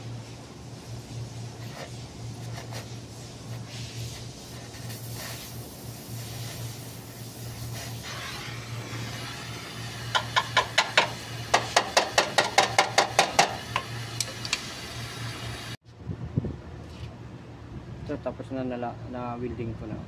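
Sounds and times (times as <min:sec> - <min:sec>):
welding torch hissing: 0:00.0 - 0:15.8
hammer tapping on metal: 0:10.1 - 0:14.6.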